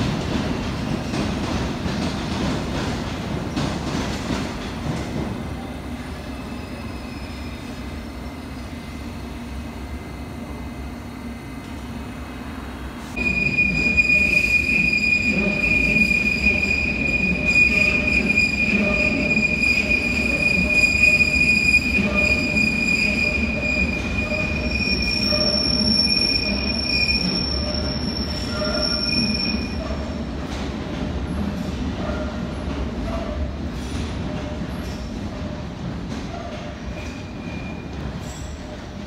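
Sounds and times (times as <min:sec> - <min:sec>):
low train rumble: 0:00.0 - 0:39.0
train wheels squealing: 0:06.2 - 0:08.8, 0:13.2 - 0:30.2, 0:36.3 - 0:38.7.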